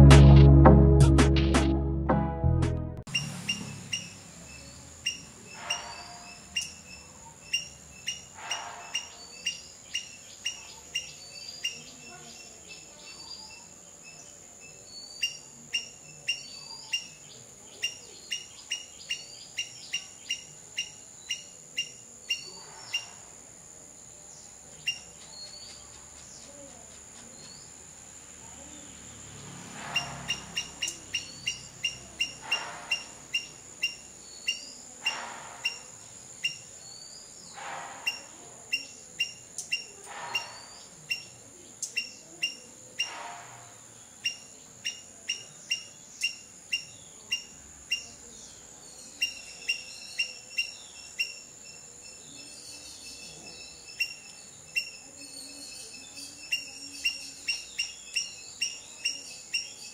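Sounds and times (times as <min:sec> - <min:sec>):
bird chirping: 0:03.1 - 0:23.3, 0:24.2 - 0:43.3, 0:43.9 - 0:59.9.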